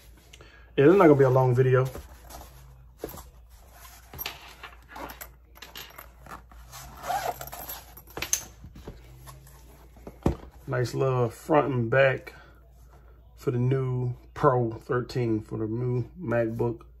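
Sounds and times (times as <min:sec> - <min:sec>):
fabric and plastic rustling: 0:00.9 - 0:10.8.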